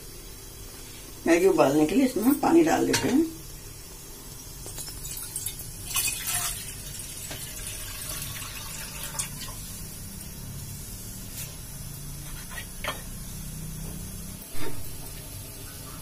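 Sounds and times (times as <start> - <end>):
water pouring into saucepan: 3.9 - 10.2.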